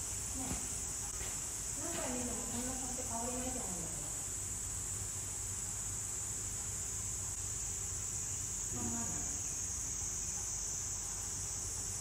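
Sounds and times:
high-pitched insect drone: 5.5s - 12.0s.

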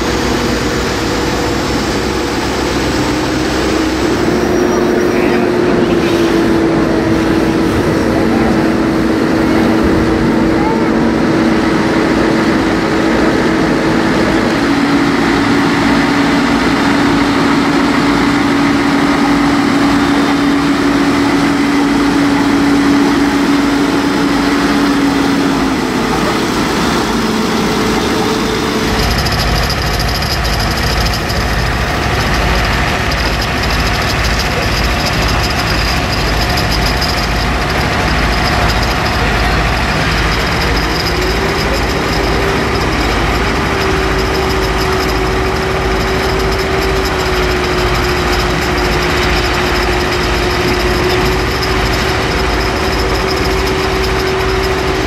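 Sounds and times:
diesel engines idling: 0.0s - 55.0s
faint high whine: 3.1s - 11.6s.

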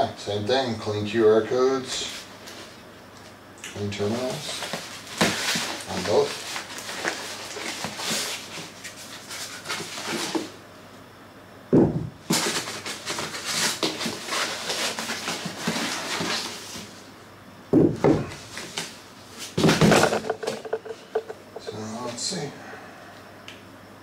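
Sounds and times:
cardboard and packing rustling: 4.4s - 10.5s, 12.2s - 17.0s
heavy thuds on tile floor: 11.7s - 12.2s, 17.7s - 18.4s, 19.6s - 21.7s.

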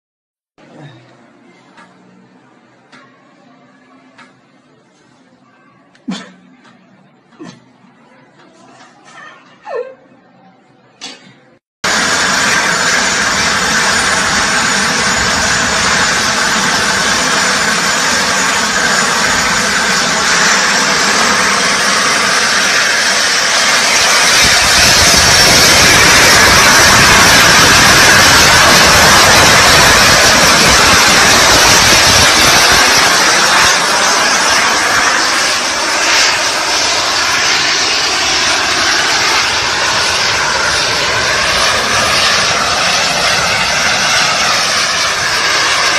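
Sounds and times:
jet turbines roaring: 11.8s - 45.9s
thin high whine: 11.9s - 45.9s.

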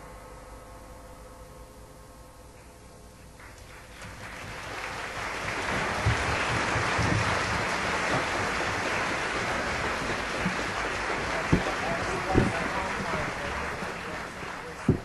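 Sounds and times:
audience applauding: 3.4s - 15.0s.

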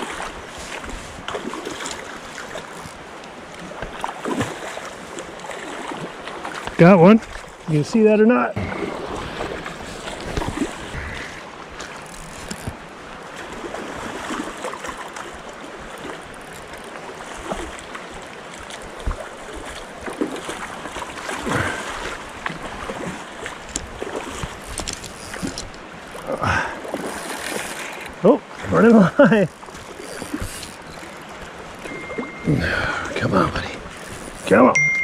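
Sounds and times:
creek water rushing: 0.0s - 35.0s.

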